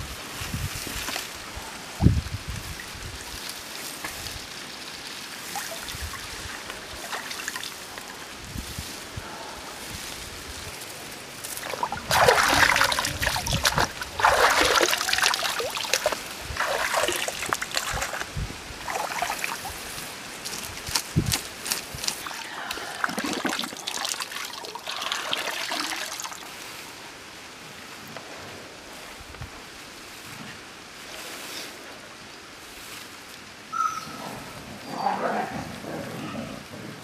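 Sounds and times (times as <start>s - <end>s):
water splashing and sloshing: 2.7s - 8.4s, 11.3s - 27.0s.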